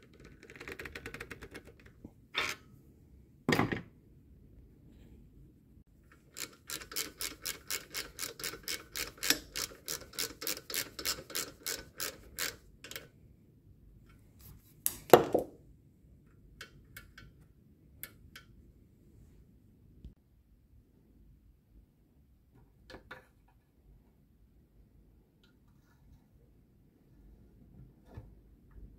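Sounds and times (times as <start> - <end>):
socket ratchet clicking: 6.1 - 13.1.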